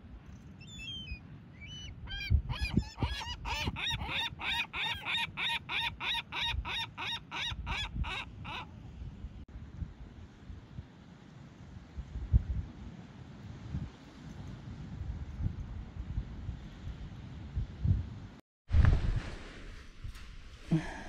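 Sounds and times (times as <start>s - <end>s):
gull calling: 1.6s - 8.7s.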